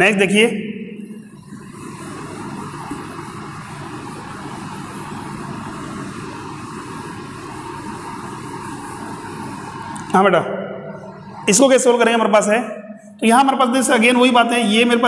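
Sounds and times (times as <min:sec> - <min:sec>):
duster rubbing whiteboard: 0:01.7 - 0:10.0.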